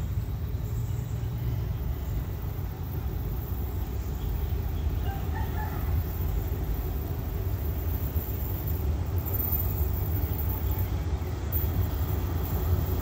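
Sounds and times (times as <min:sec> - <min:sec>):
faint rooster crowing: 0:05.0 - 0:06.3.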